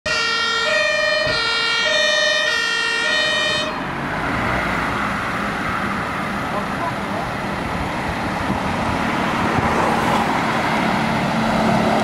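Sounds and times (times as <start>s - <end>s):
two-tone fire engine siren: 0.0s - 5.3s
vehicle engine and tyre noise: 0.1s - 12.0s.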